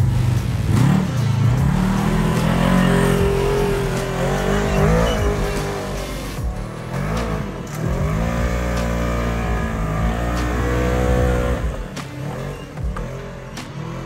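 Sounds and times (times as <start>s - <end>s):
utility vehicle engine revving: 0.0s - 14.0s.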